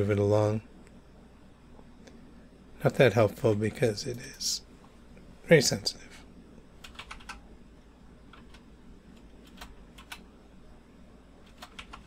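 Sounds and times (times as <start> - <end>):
computer keyboard clicking: 6.8 - 7.4, 8.3 - 10.2, 11.4 - 12.0.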